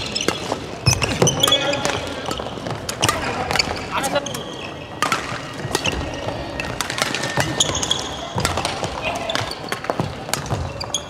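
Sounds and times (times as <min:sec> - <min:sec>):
racket hitting shuttlecock: 0:00.0 - 0:03.8, 0:05.0 - 0:10.8
shoes squeaking on floor: 0:00.0 - 0:11.0.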